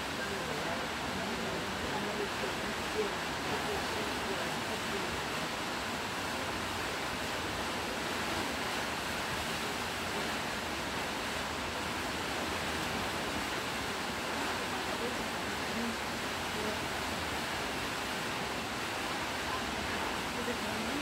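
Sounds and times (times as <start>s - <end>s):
waterfall rushing: 0.0s - 21.0s.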